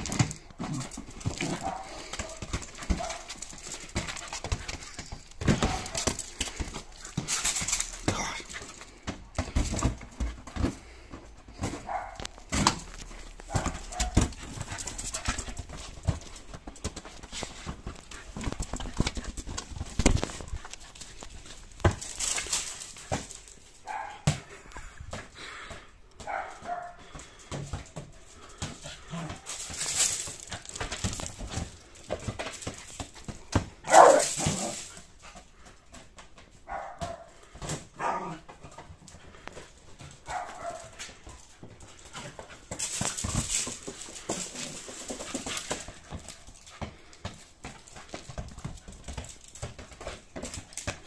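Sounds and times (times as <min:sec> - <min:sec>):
paws scrabbling on gravel: 0:00.0 - 0:25.1, 0:26.2 - 0:51.0
small dog yapping: 0:33.9 - 0:34.7.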